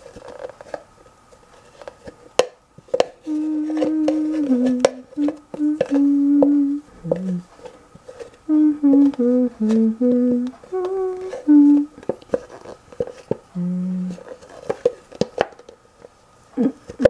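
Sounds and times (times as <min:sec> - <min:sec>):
woman humming: 0:03.2 - 0:07.5, 0:08.5 - 0:12.0, 0:13.5 - 0:14.3, 0:16.6 - 0:17.0.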